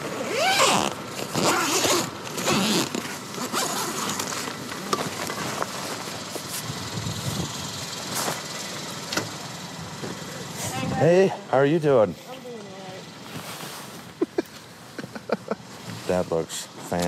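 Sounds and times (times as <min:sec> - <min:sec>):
car engine idling: 0:00.0 - 0:17.0
tent zipper pulled open: 0:00.1 - 0:04.5
light scuffs: 0:12.2 - 0:15.1.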